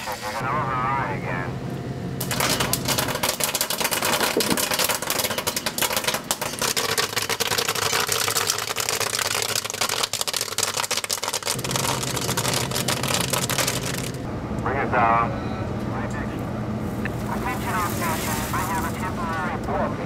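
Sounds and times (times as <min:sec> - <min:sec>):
popcorn popping: 0:02.2 - 0:14.2
low steady hum: 0:11.5 - 0:20.0.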